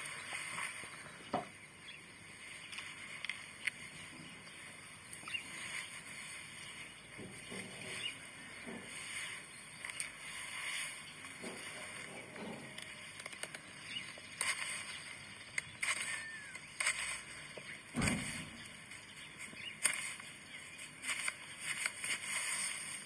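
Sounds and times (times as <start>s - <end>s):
knife shaving wood: 12.8s - 17.9s, 18.5s - 23.0s.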